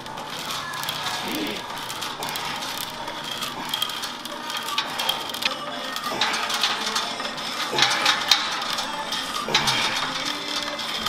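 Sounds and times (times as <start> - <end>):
cable running over pulleys whirring: 0.0 - 11.0
weight-stack plates clicking: 0.0 - 11.0.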